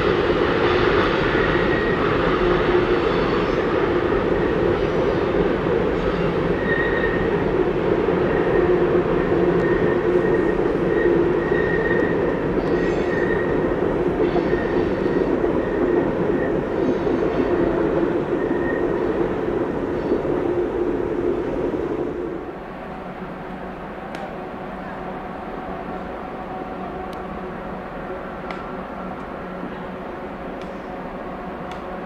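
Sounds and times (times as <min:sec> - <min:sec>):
train wheels rolling on rail: 0:00.0 - 0:32.0
wheel squeal: 0:06.1 - 0:07.3, 0:09.6 - 0:13.6.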